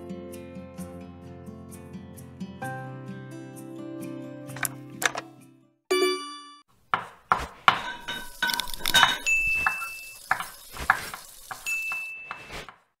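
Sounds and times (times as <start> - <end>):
utensil clinks and taps: 7.7 - 10.6
sizzle-like hiss: 8.1 - 12.6.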